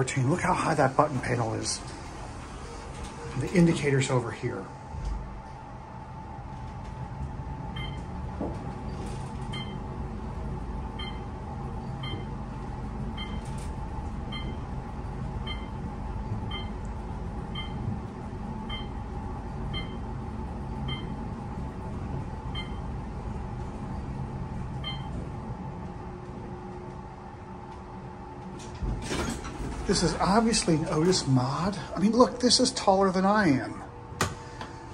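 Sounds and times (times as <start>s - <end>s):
elevator rumble and hum: 0.0s - 34.9s.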